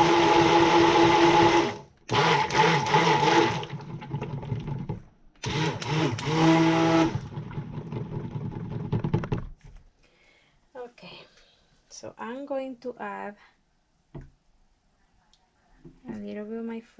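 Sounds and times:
immersion blender running: 0.0s - 9.2s
blender head clattering: 0.0s - 9.4s.

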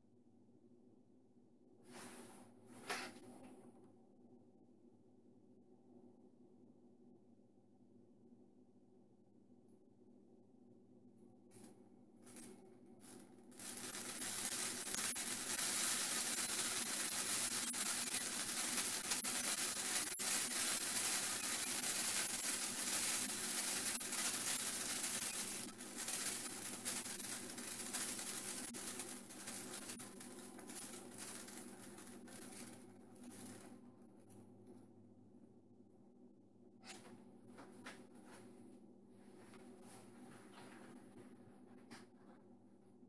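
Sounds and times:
water sizzling on hotplate: 13.5s - 33.6s
crackles of boiling water: 13.5s - 33.8s.

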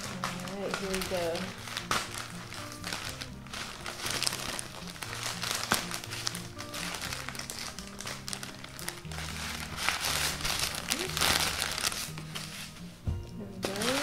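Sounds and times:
scissors cutting plastic: 0.0s - 12.1s, 13.7s - 14.0s
plastic bag crinkling: 0.0s - 12.8s, 13.6s - 14.0s
background music with bass notes: 0.0s - 14.0s.

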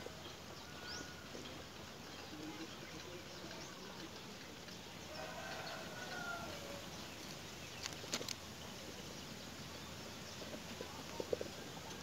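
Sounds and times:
soft ticks: 1.1s - 6.4s.

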